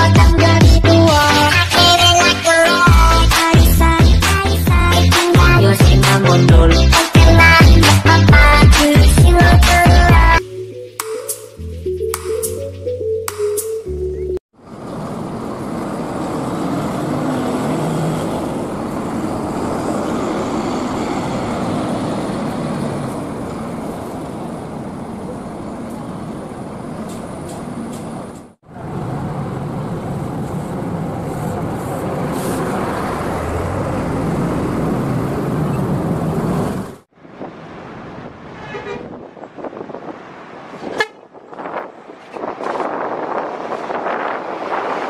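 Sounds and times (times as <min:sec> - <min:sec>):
bus engine running: 0:00.0 - 0:10.4, 0:14.6 - 0:45.0
outdoor traffic noise: 0:09.4 - 0:45.0.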